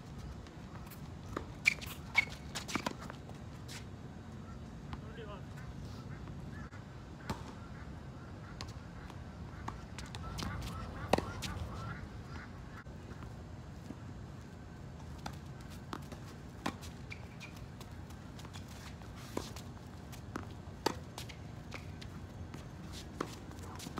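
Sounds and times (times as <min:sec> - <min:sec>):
tennis ball struck and bouncing: 0:09.6 - 0:11.6.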